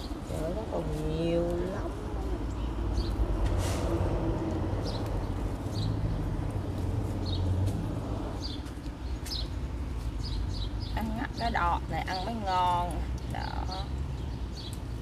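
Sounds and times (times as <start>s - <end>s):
leaves rustling: 0.0s - 10.8s
low outdoor rumble: 0.0s - 15.0s.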